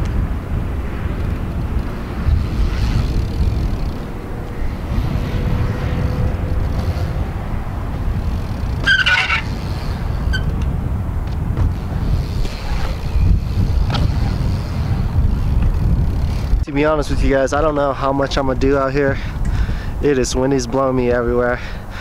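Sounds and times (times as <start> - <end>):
bike tyres rolling on concrete: 0.0 - 22.0
wind buffeting microphone: 0.0 - 22.0
brief high squeak: 8.8 - 9.5.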